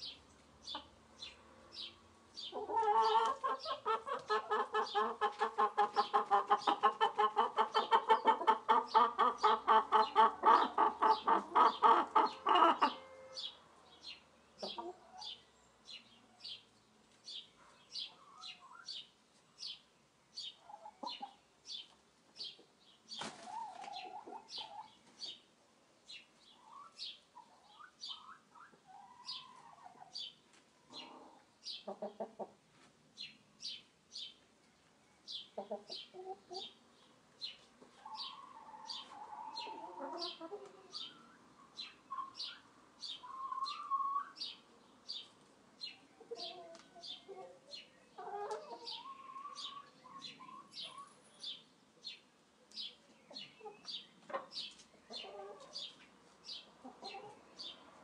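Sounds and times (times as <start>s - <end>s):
hens clucking: 2.4s - 13.3s, 14.6s - 15.4s, 23.1s - 25.4s, 30.9s - 32.6s, 35.6s - 36.8s, 37.6s - 42.5s, 43.1s - 44.4s, 46.2s - 51.1s, 53.2s - 57.7s
small bird chirping: 26.1s - 32.2s, 35.2s - 57.8s.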